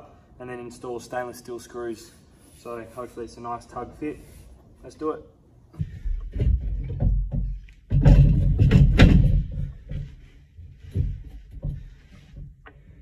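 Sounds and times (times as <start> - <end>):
hatch knocking and thumping: 5.8 - 10.2, 10.8 - 12.6.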